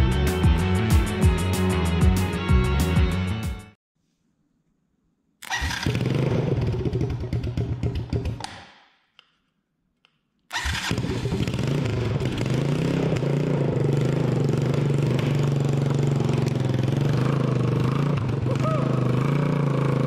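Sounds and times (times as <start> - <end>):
four-stroke engine running: 5.5 - 8.4, 10.6 - 20.0.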